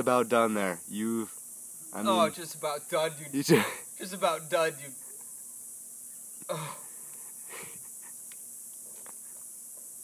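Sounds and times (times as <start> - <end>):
background hiss: 0.0 - 10.0.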